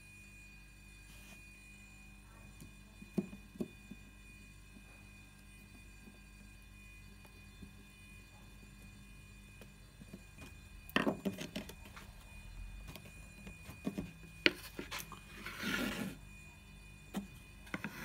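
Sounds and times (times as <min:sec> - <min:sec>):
short scraping rub: 0:14.6 - 0:16.2.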